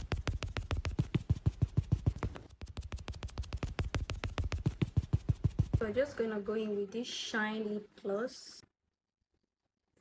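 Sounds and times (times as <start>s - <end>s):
makeup brush tapping on face: 0.0s - 6.1s.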